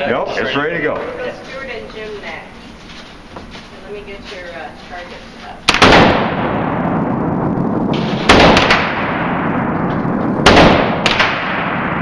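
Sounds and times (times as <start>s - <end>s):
rifle shots echoing indoors: 5.7s - 12.0s.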